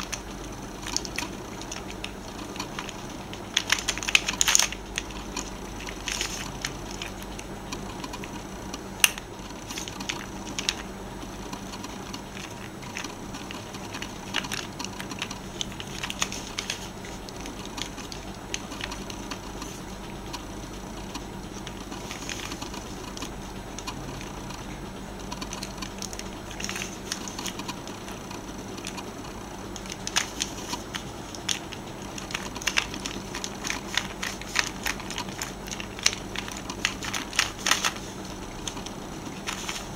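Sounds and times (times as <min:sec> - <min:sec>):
plastic puzzle pieces clicking: 0:00.0 - 0:08.4, 0:11.6 - 0:19.7, 0:29.7 - 0:39.9.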